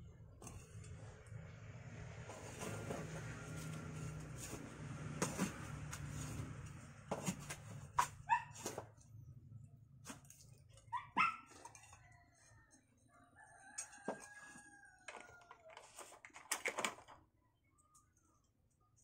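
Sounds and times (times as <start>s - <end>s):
rooster crowing: 11.8s - 15.7s.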